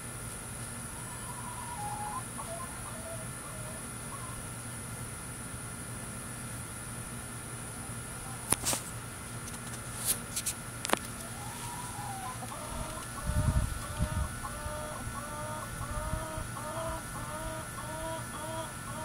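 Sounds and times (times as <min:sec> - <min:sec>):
hen cackling: 0:00.9 - 0:04.5, 0:11.2 - 0:19.0.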